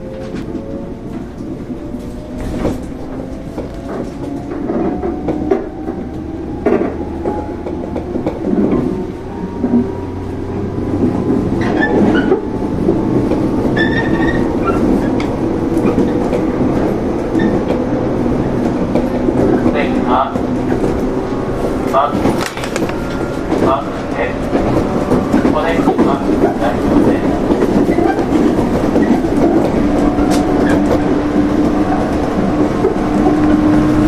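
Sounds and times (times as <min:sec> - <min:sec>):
wheel squeal: 0:13.7 - 0:15.1.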